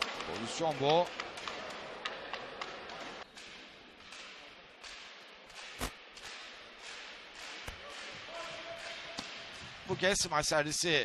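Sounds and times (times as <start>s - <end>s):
crowd hubbub: 0.0s - 4.8s.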